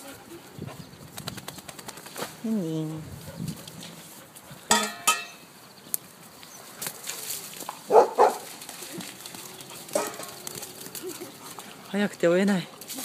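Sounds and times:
dog barking: 0:07.9 - 0:08.4.

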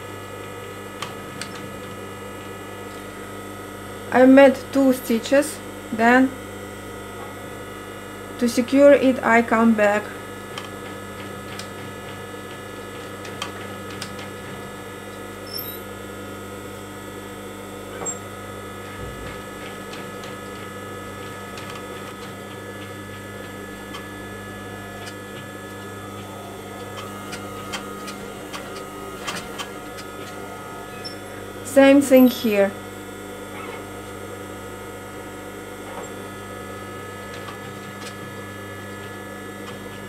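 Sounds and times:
sewing machine motor hum: 0:09.8 - 0:40.0.

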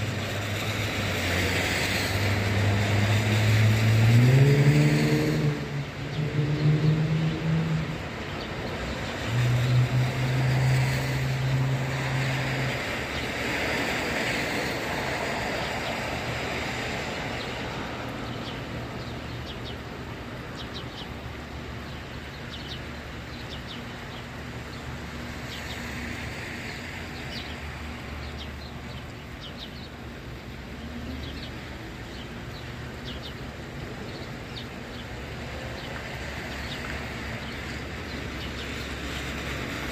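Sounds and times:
tyres hissing on wet pavement: 0:00.0 - 0:39.9
vehicle engines droning: 0:00.0 - 0:39.9
vehicle speeding up: 0:01.4 - 0:08.0.

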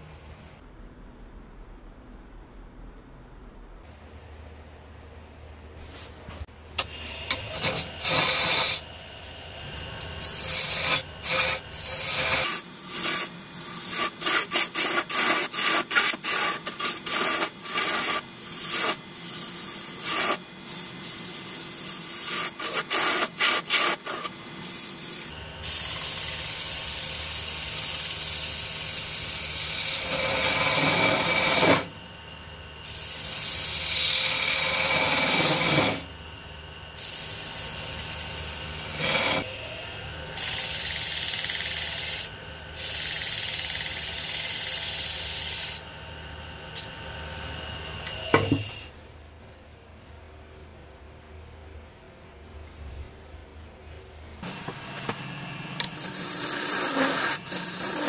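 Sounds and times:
lathe low hum: 0:00.0 - 0:58.0
gouge scraping wood on lathe: 0:07.3 - 0:08.8, 0:10.2 - 0:19.0, 0:33.4 - 0:36.0, 0:56.1 - 0:58.0.

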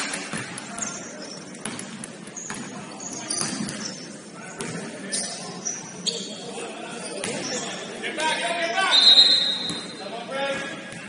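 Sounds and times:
sneakers squeaking: 0:00.0 - 0:08.0, 0:08.6 - 0:11.0
hum of a large hall: 0:00.0 - 0:11.0
basketball bouncing: 0:00.1 - 0:02.8.

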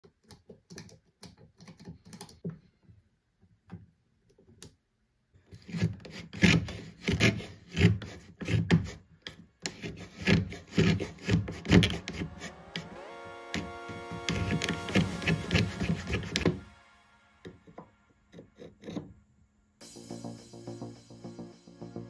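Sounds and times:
plane blade scraping wood: 0:05.6 - 0:09.0, 0:09.6 - 0:12.9, 0:13.6 - 0:16.6.

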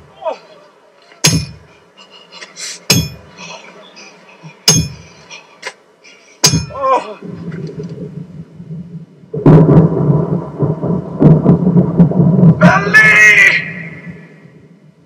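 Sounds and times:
sharp metallic strike ringing: 0:01.3 - 0:01.6, 0:06.4 - 0:06.8
rolling rumble of thunder: 0:07.2 - 0:12.9.

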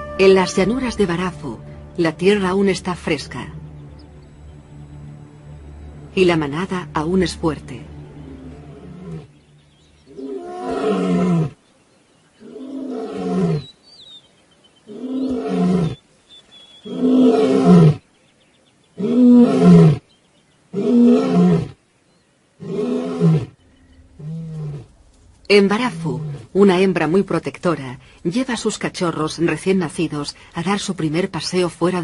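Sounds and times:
lion roaring: 0:08.2 - 0:09.4, 0:10.1 - 0:11.6, 0:12.4 - 0:13.7, 0:16.8 - 0:18.0, 0:19.0 - 0:20.0, 0:22.6 - 0:26.6.

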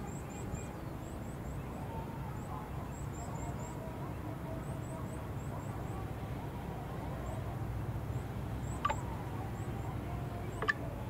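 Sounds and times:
low outdoor rumble: 0:00.0 - 0:11.0
small birds chirping: 0:00.0 - 0:11.0.

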